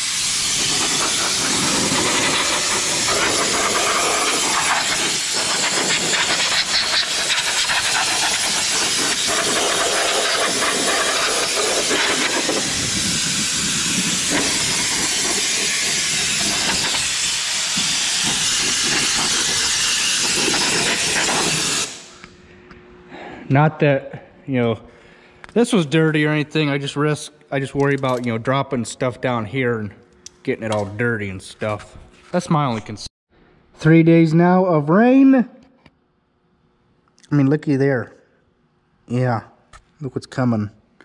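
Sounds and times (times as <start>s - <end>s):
compressed air blow gun hissing: 0.0s - 22.2s.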